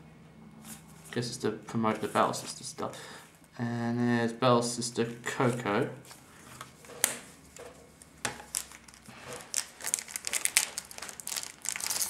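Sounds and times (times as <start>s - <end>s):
packaging crinkling and rustling: 8.3s - 12.0s.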